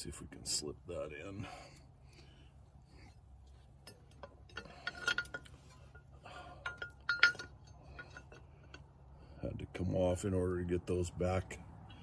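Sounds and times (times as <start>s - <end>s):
steel bracket clinking on metal: 3.7s - 8.9s.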